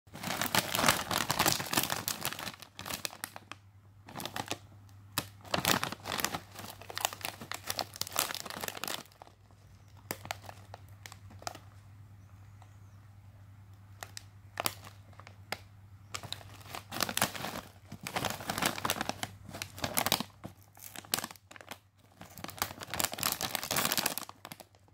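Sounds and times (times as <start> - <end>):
plastic chip bag crinkling: 0.1 - 11.9, 13.9 - 24.9
faint low hum: 0.1 - 24.9.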